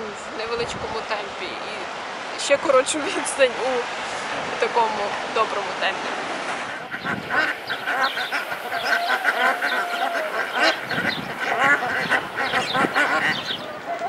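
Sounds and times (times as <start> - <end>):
ducks quacking: 6.6 - 14.0.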